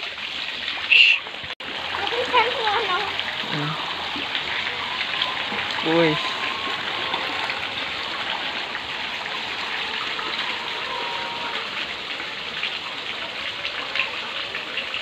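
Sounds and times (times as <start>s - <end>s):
fish splashing in water: 0.0s - 15.0s.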